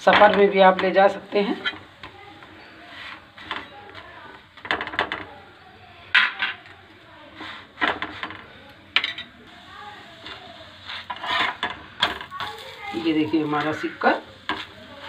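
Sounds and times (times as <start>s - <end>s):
metal spatula scraping griddle: 0.1s - 3.8s, 7.3s - 15.0s.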